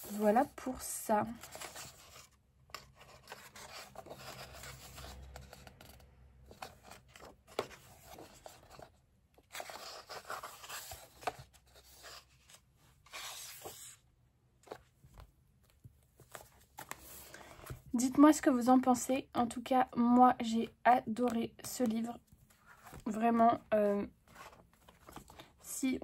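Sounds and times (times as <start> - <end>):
paper pages turning: 0.0 - 14.0, 24.2 - 25.6.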